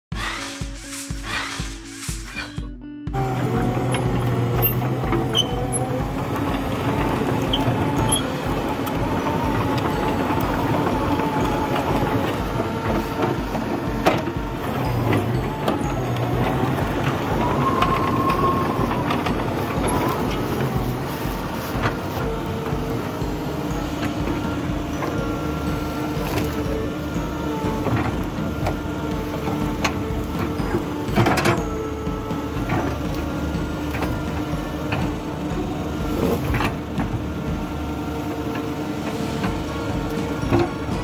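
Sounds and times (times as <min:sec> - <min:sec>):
hydraulic whine: 0:00.1 - 0:41.0
diesel engine under load: 0:03.1 - 0:41.0.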